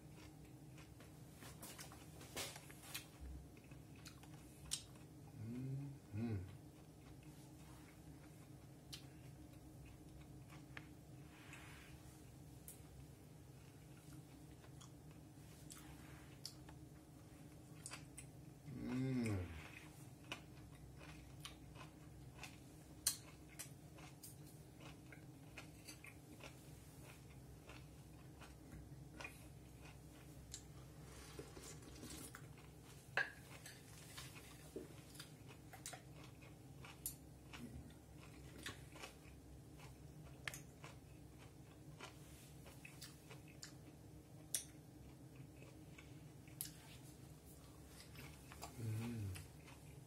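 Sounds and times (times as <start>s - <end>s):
chewing: 0.0s - 50.0s.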